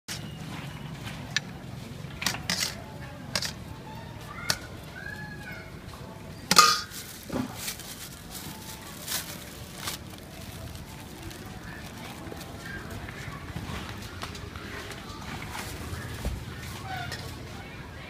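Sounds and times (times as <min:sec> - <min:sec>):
metal ladle scraping steel bowl: 0:02.2 - 0:03.6.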